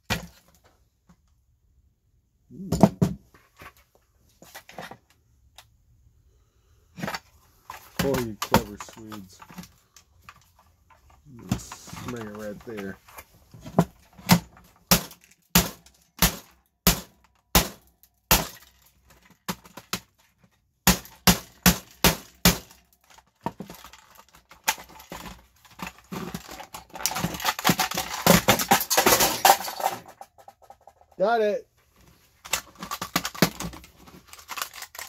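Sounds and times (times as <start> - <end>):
hammer striking hard plastic: 13.7 - 18.6, 20.8 - 22.8
plastic cracking and snapping: 20.9 - 29.8, 32.4 - 35.0.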